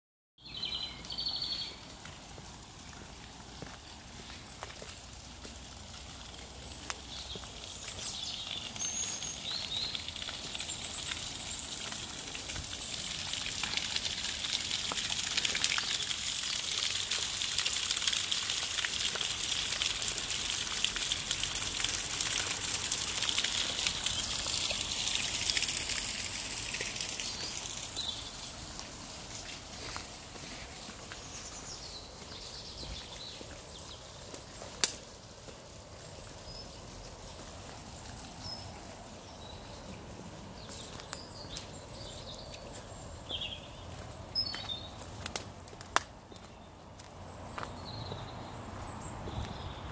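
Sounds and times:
water flowing in channel: 1.1 - 44.1
water splashing from drain pipe: 5.5 - 30.0.

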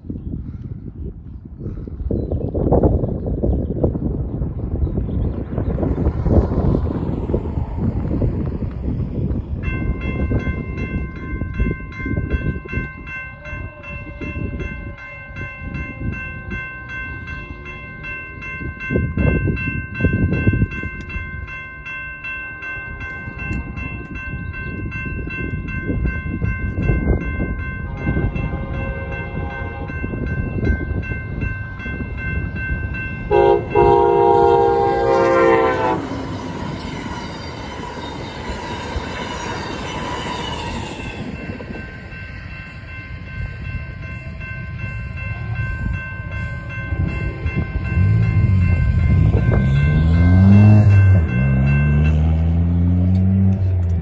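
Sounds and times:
train rushing and rumbling past: 0.0 - 54.0
railroad crossing bell ringing: 5.8 - 54.0
train horn blasts: 28.0 - 30.3, 33.2 - 36.6.

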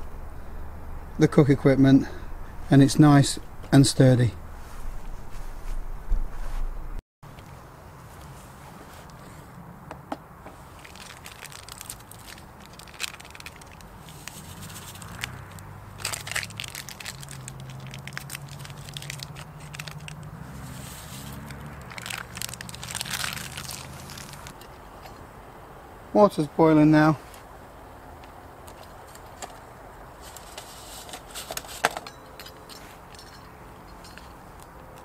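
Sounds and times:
crackling and ticking: 10.7 - 20.3, 21.3 - 24.7.

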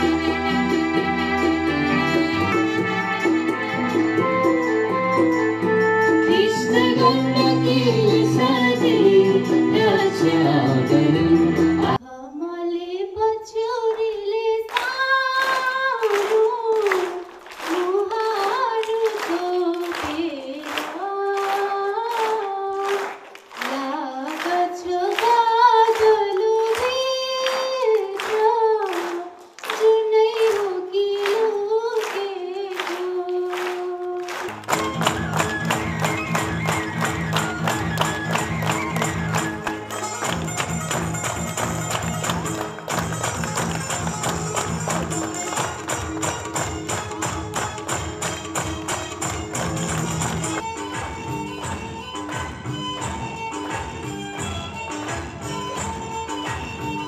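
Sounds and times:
music: 0.0 - 57.0
girl singing unaccompanied: 11.8 - 22.9.

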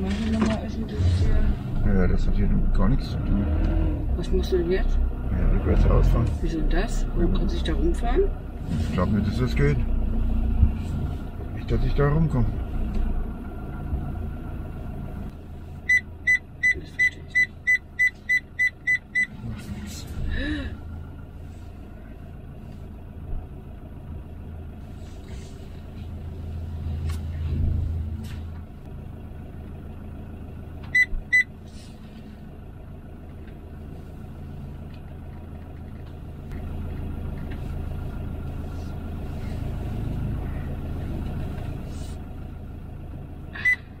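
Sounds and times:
motorhome engine running: 0.0 - 44.0
loud electronic beeps: 15.9 - 19.4, 43.6 - 44.0.

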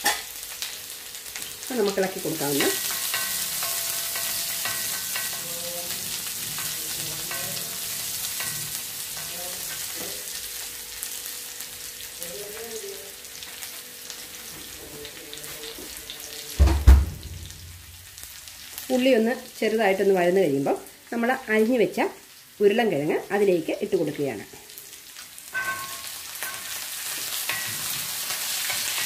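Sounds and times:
onions sizzling in hot oil: 0.0 - 29.0
loud low thump: 16.6 - 17.9.

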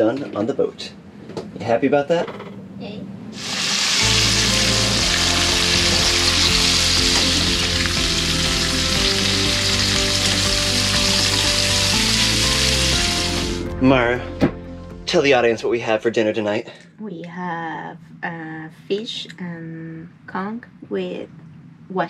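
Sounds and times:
fish sizzling in frying pan: 3.4 - 13.6
background music with bass: 4.0 - 15.9.

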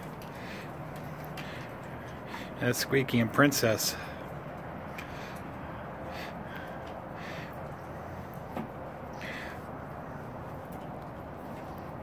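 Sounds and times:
faint background hum: 0.0 - 12.0.

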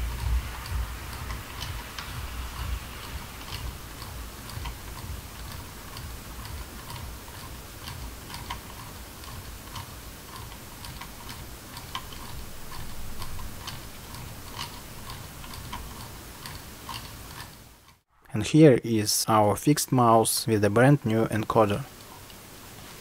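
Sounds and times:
mouse scroll wheel ticking: 0.0 - 18.0.

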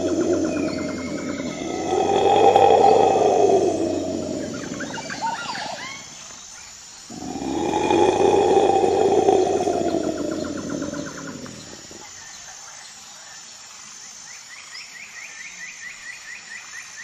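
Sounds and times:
tiger growling roars: 0.0 - 6.2, 7.1 - 12.1.

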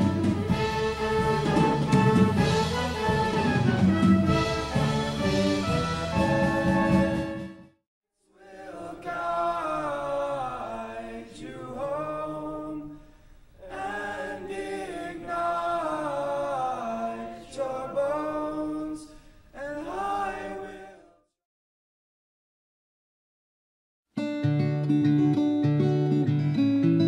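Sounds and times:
accompanied music: 0.0 - 7.7
male a cappella group singing: 1.0 - 5.6, 8.3 - 13.0, 13.6 - 21.3.

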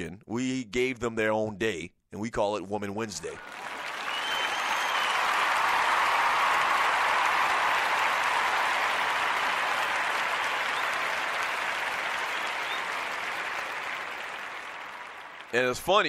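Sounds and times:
crowd applauding: 3.3 - 16.0.

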